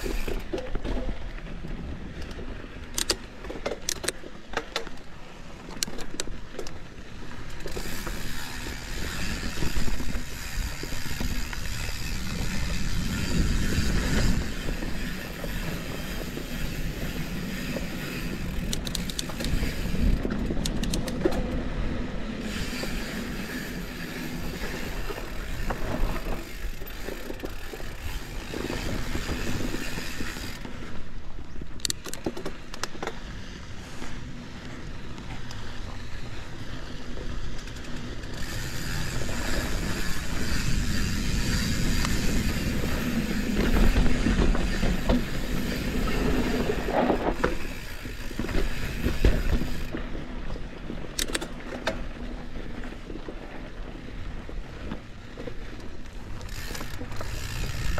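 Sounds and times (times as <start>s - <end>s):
bike knocking and rattling: 0.0s - 57.9s
bike tyres rolling on dirt: 0.0s - 57.9s
wind on microphone: 7.6s - 31.7s, 33.4s - 51.2s.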